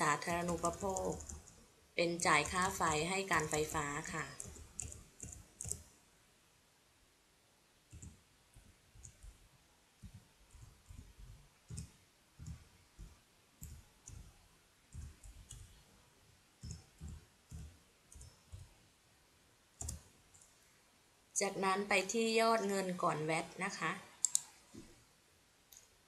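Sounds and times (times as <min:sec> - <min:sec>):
faint keyboard typing: 0:00.0 - 0:05.9, 0:07.9 - 0:16.0, 0:16.6 - 0:18.9, 0:19.8 - 0:20.6, 0:24.1 - 0:24.9, 0:25.7 - 0:26.0.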